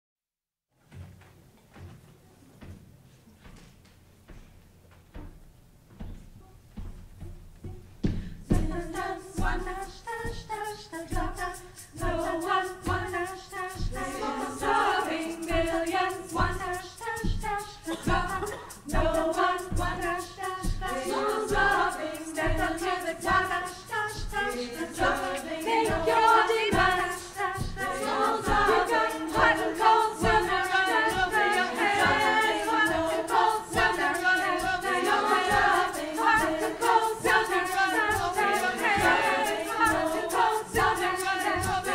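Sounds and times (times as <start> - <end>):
frame drum beat: 6.2 - 41.9
women's choir singing: 8.4 - 41.9.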